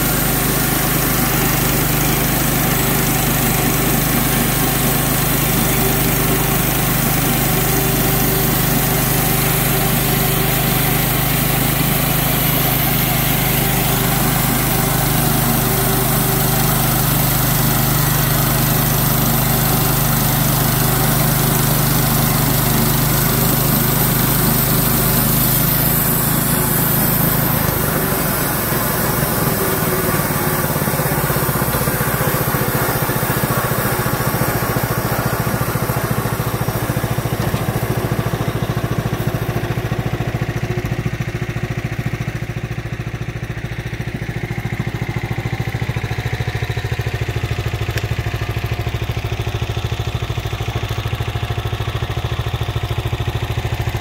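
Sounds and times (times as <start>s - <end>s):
band saw blade cutting log: 0.0s - 40.2s
gasoline engine running under load: 0.0s - 54.0s.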